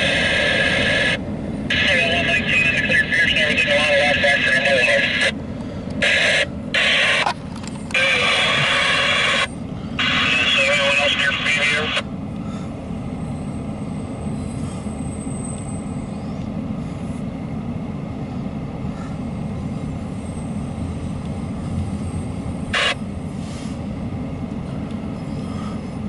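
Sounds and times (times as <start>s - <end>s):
freight train wheels rumbling: 0.0s - 26.0s.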